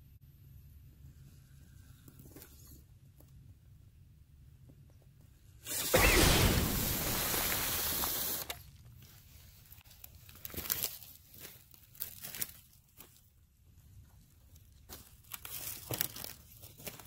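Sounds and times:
toy truck tires spinning in dirt: 0:05.6 - 0:08.7
crackles in dry leaves: 0:06.0 - 0:13.4, 0:14.0 - 0:17.0.

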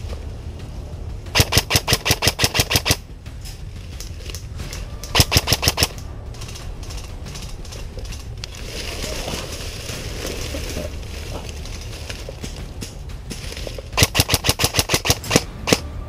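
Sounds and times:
rustling through dry leaves: 0:00.0 - 0:16.0
airsoft rifle full-auto burst: 0:01.3 - 0:03.0, 0:05.1 - 0:06.0, 0:14.0 - 0:15.8.

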